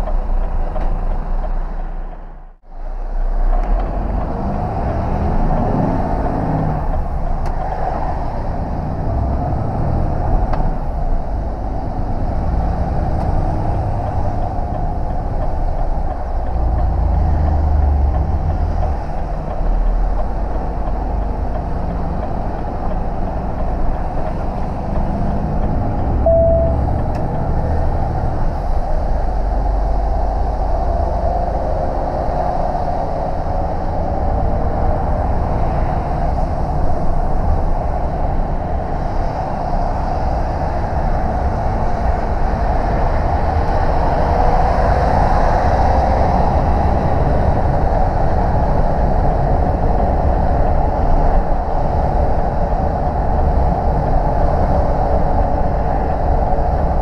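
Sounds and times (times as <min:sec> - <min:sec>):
road noise: 0:00.0 - 0:57.0
truck engine drone: 0:00.0 - 0:57.0
short beep: 0:26.2 - 0:27.0.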